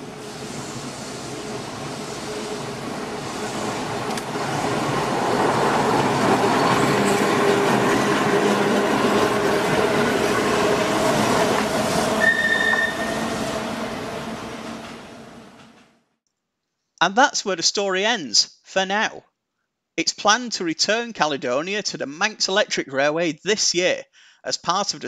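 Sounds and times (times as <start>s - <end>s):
tramcar passing on track: 0.0s - 15.9s
brief high tone: 12.2s - 13.3s.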